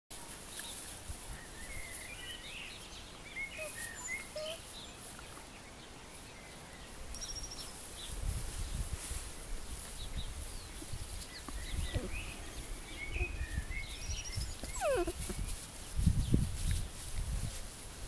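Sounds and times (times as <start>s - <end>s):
birds chirping: 0.6s - 8.9s, 9.9s - 15.6s.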